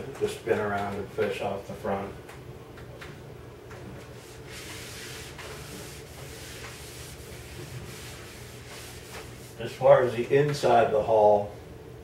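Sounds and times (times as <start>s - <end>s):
low steady hum: 0.0s - 12.0s
chalk scratching on chalkboard: 4.2s - 9.8s.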